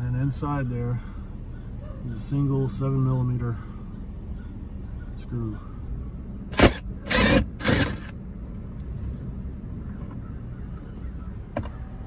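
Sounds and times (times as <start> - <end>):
cordless power driver bursts: 6.5 - 8.1.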